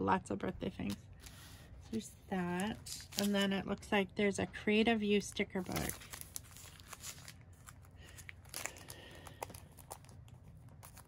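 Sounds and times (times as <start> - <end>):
plastic sleeve crinkling: 0.8 - 3.6, 5.2 - 11.0.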